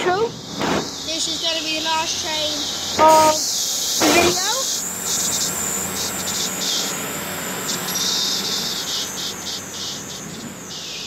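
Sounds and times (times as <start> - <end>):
diesel train engines running: 0.0 - 11.0
high hiss: 0.0 - 11.0
train wheels rolling on rails: 0.0 - 11.0.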